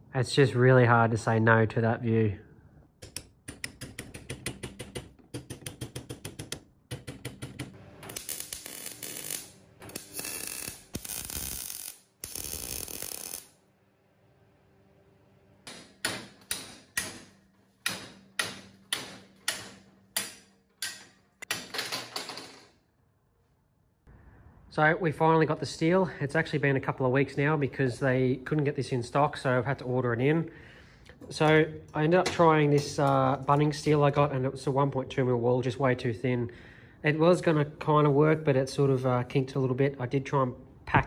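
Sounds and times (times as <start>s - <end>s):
welder crackling: 8.0s - 13.6s
hammer tapping on steel: 15.7s - 21.6s.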